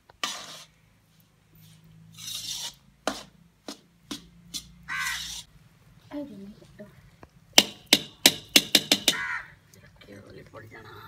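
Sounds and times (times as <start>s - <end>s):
metal spatula scraping tray: 0.0s - 0.8s, 1.6s - 5.5s.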